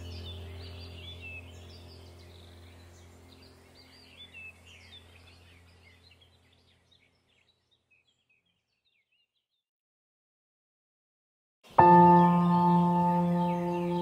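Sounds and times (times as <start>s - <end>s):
steady low hum: 0.0s - 8.1s
birds chirping and singing: 0.0s - 9.6s, 11.7s - 14.0s.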